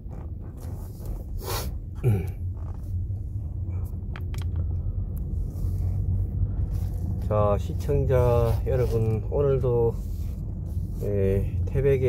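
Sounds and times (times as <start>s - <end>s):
car interior low rumble: 0.0s - 12.0s.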